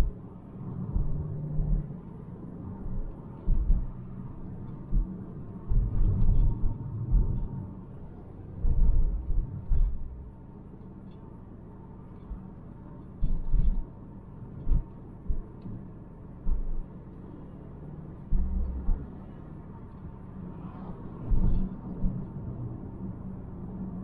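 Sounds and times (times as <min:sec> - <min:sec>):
car engine and tyre rumble: 0:00.0 - 0:24.0
short low thumps: 0:00.9 - 0:01.9, 0:02.8 - 0:07.6, 0:08.6 - 0:10.4, 0:16.5 - 0:16.9, 0:18.3 - 0:19.2.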